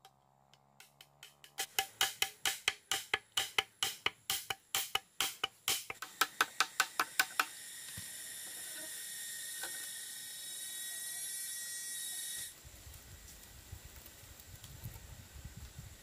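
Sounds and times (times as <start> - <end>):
knife striking bamboo tube: 0.0 - 7.6.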